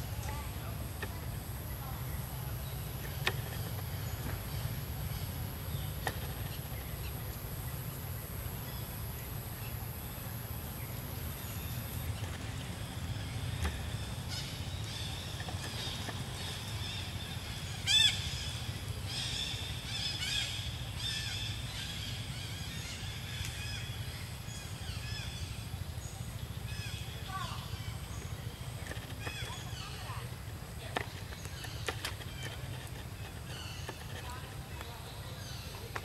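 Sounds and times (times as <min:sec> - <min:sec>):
low outdoor rumble: 0:00.0 - 0:36.0.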